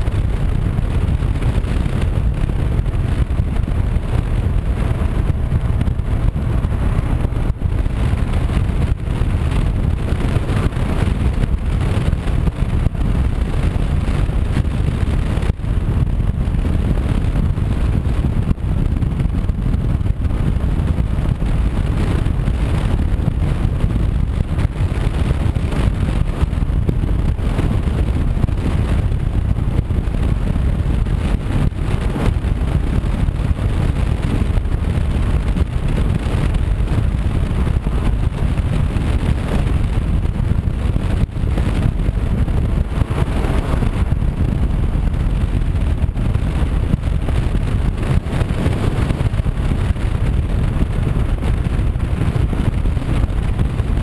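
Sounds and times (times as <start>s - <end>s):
motorcycle engine: 0.0s - 54.0s
wind rushing over microphone: 0.0s - 54.0s.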